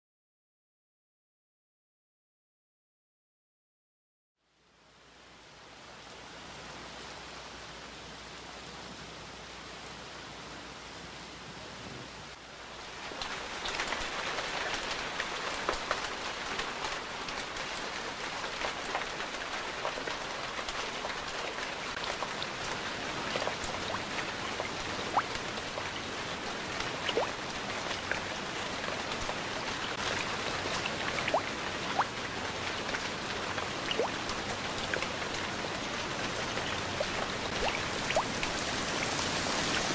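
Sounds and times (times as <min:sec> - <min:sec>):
rain hissing on a window: 0:04.4 - 0:39.9
rain falling on wood: 0:11.2 - 0:39.9
rain drops ticking on window: 0:12.7 - 0:39.9.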